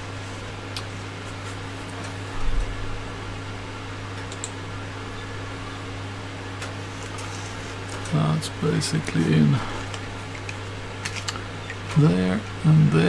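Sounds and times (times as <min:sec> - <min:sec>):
low room hum: 0:00.0 - 0:13.0
faint small clicks: 0:04.2 - 0:04.6.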